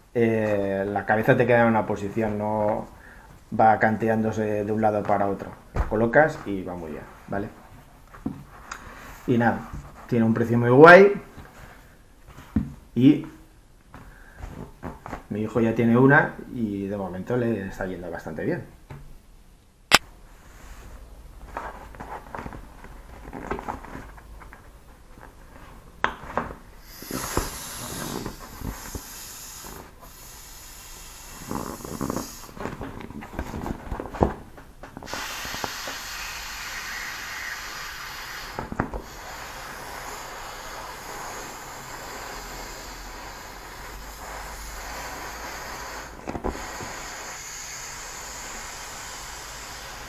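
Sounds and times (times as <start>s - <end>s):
vinyl pillow crinkling and squeaking: 21.5s - 26.0s, 31.3s - 35.1s
air hissing out of valve: 26.8s - 32.7s, 35.0s - 50.0s.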